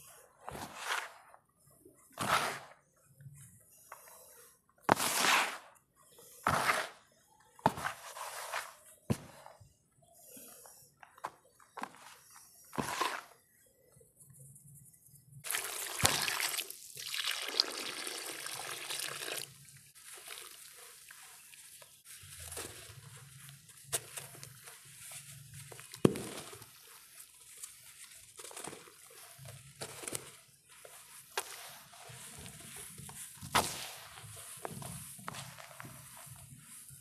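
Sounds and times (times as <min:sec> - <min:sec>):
crackles and crunches of clumps: 0:19.8 - 0:37.0.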